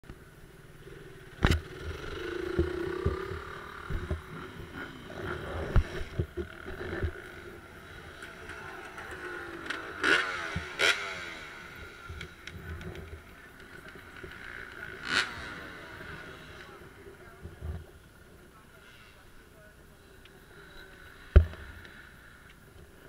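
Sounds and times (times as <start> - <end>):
dirt bike engine revving: 0.5 - 17.4.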